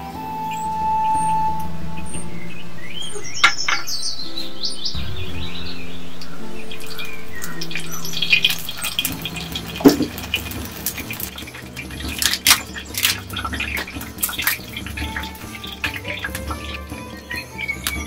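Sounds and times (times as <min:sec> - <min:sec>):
background music: 0:00.0 - 0:18.0
pot crackling and popping on fire: 0:02.9 - 0:18.0
loud knock: 0:04.9 - 0:11.4.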